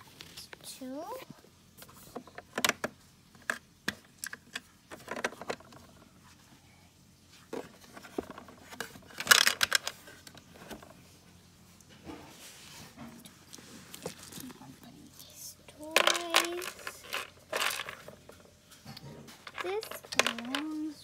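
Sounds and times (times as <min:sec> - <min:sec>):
plastic toys clicking and clattering: 0:02.1 - 0:06.1, 0:07.6 - 0:11.0, 0:15.3 - 0:21.0.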